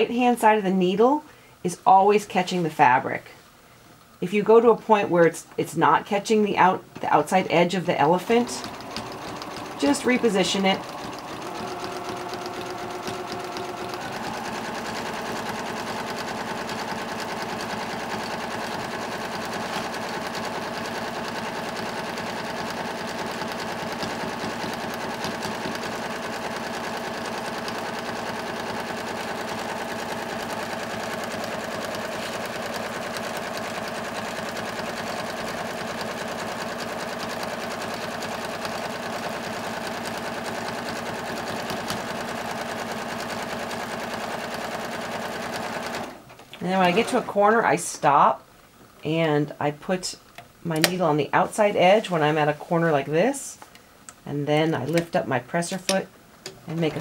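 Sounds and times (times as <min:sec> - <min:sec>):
sewing machine running: 0:08.0 - 0:47.6.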